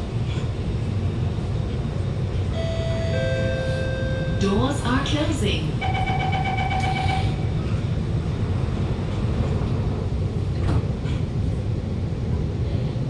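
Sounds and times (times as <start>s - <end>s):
train carriage rumble: 0.0s - 13.0s
door warning beeps: 5.8s - 7.4s.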